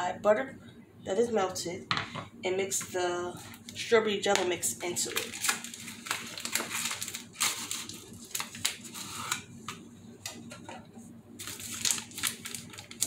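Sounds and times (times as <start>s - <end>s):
cardboard box and packet rustling: 5.0s - 9.4s, 11.4s - 13.0s.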